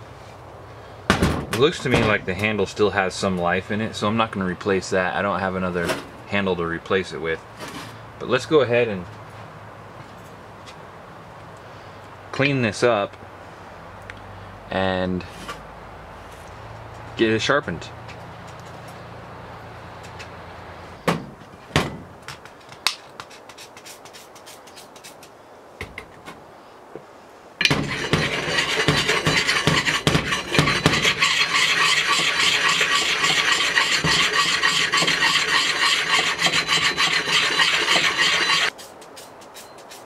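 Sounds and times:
stone rasping on steel axe head: 27.6s - 40.0s.

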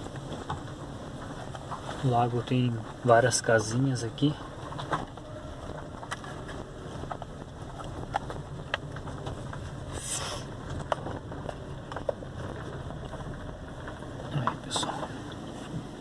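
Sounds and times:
engine and road rumble: 0.0s - 16.0s
short hiss: 9.9s - 10.5s.

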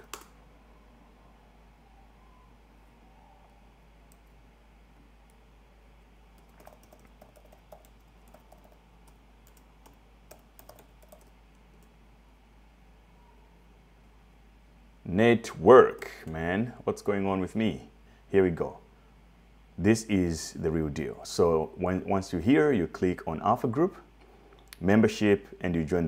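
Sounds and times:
keyboard typing clicks: 0.0s - 0.3s, 6.4s - 11.9s
low background hum: 0.0s - 26.0s.

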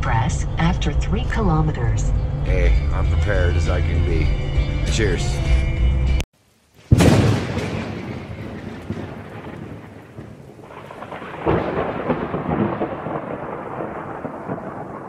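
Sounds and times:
rolling thunder: 6.9s - 15.0s.

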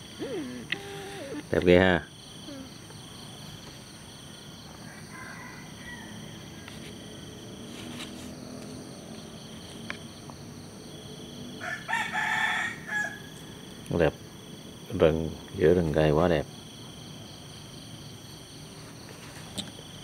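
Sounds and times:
faint insect chirps and clicks: 0.0s - 1.8s, 8.0s - 10.4s, 13.8s - 14.1s, 15.4s - 15.7s
insects trilling: 0.0s - 20.0s.

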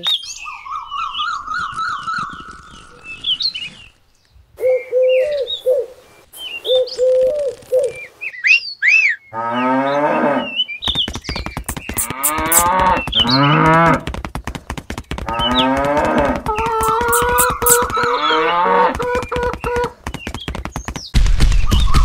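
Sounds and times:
small birds chirping: 0.0s - 9.2s, 10.7s - 13.7s, 14.3s - 22.0s.

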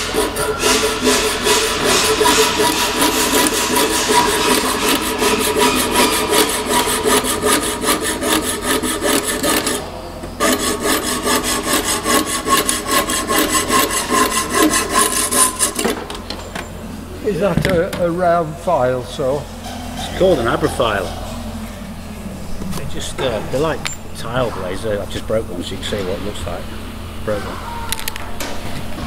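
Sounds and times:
hand saw cutting metal: 0.0s - 16.1s, 19.6s - 21.4s.

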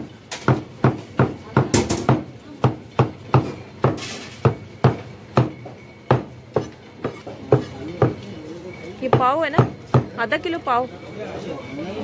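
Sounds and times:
cleaver chopping on wooden block: 0.4s - 8.2s.

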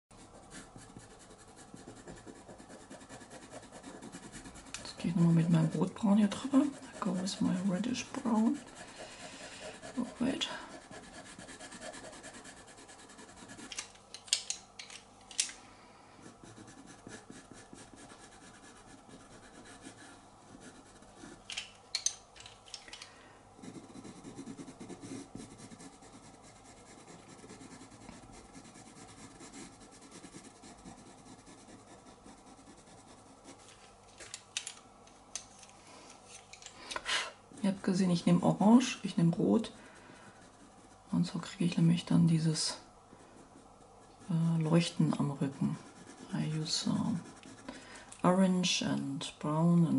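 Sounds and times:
pastel pencil scratching paper: 0.1s - 13.8s, 16.2s - 21.4s, 23.6s - 33.7s, 37.6s - 42.2s, 43.3s - 47.8s.

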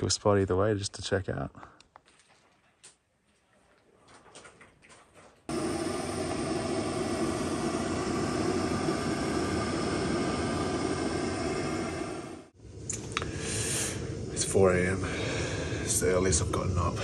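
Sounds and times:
gas stove burner rushing: 5.5s - 17.0s.

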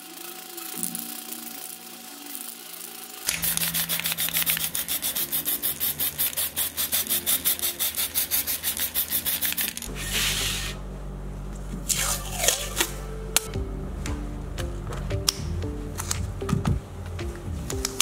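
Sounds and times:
fast rubbing strokes: 2.2s - 10.8s.

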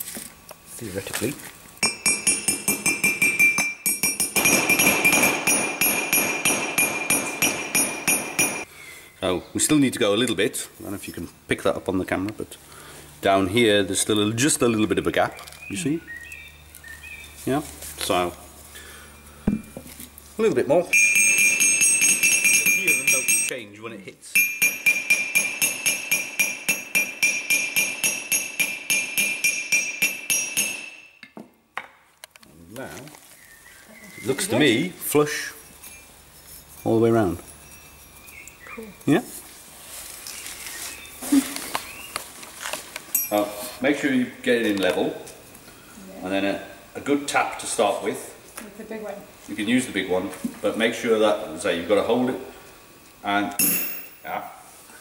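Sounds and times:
hammer tapping metal: 1.8s - 8.7s, 20.9s - 23.6s, 24.4s - 31.5s, 53.6s - 54.3s.

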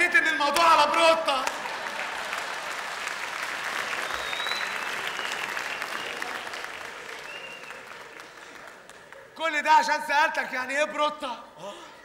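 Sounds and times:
audience applauding: 0.5s - 9.4s.

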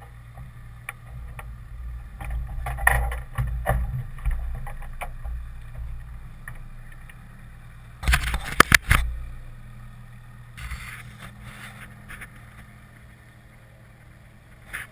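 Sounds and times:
knocks and clatters of handling: 0.0s - 7.2s
wind rumbling on microphone: 0.0s - 9.6s
brief rustle: 10.6s - 12.7s.

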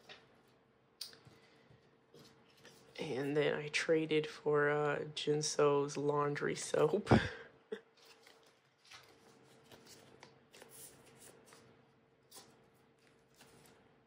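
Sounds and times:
plastic sleeves rustling: 7.8s - 14.0s.

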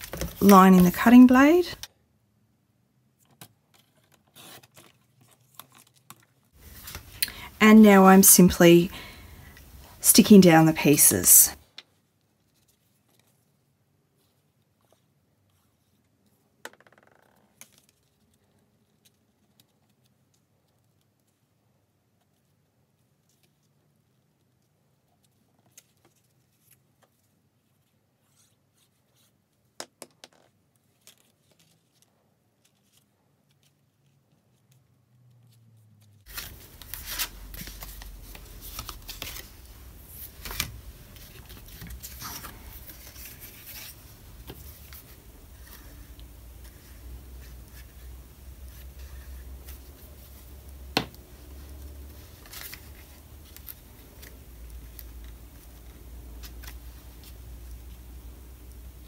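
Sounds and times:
paper rustling and sliding: 3.7s - 7.2s, 36.2s - 50.5s.

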